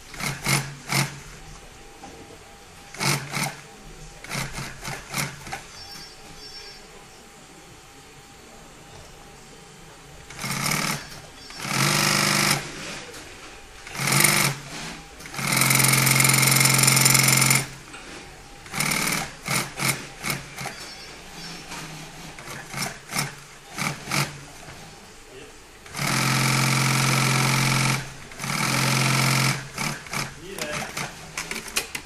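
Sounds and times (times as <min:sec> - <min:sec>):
sewing machine stitching: 0:00.0 - 0:01.3, 0:02.9 - 0:03.6, 0:04.2 - 0:06.1, 0:10.3 - 0:13.2, 0:13.8 - 0:24.9, 0:25.8 - 0:32.0.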